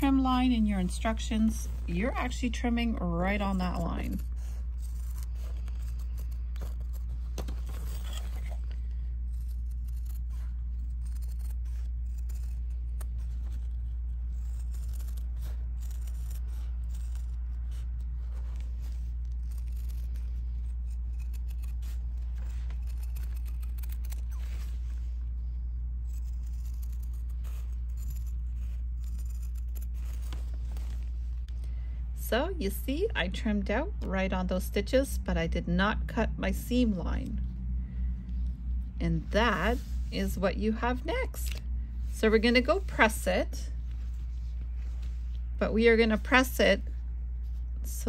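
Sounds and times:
scissors snipping fabric: 0.0 - 25.0, 26.0 - 31.0
steady low hum: 0.0 - 48.0.

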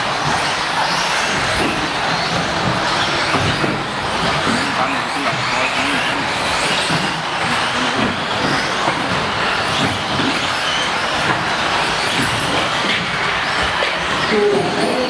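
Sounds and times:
rc car motors whining: 0.0 - 15.0
hall echo din: 13.9 - 15.0.

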